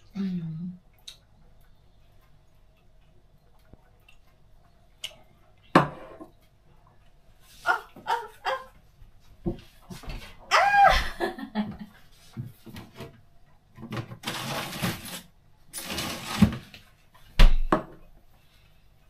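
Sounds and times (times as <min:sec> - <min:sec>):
woman exclaiming: 0:10.5 - 0:11.2.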